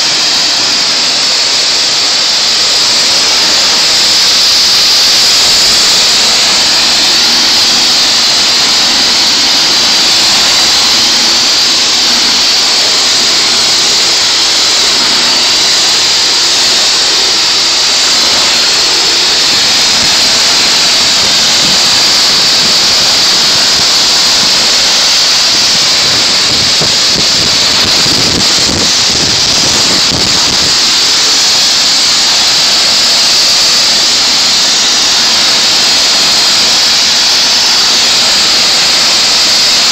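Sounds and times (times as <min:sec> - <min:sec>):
pressure washer water spraying: 0:00.0 - 0:39.9.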